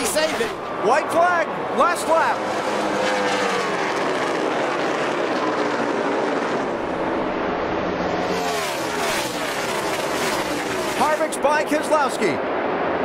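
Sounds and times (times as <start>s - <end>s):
race car engines racing by: 0.0s - 13.0s.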